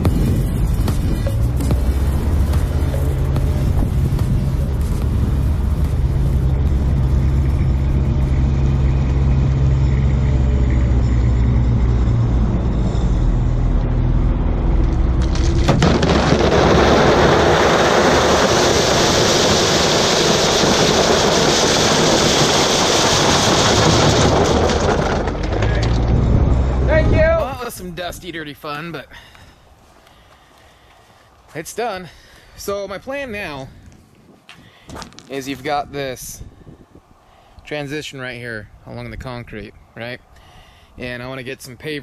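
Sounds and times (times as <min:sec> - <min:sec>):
loud rushing noise: 0:00.0 - 0:09.8, 0:10.9 - 0:27.6
vehicle engine running: 0:00.0 - 0:27.6.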